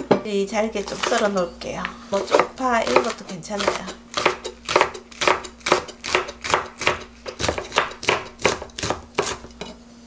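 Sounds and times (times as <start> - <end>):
knife chopping on wooden board: 2.2 - 9.7.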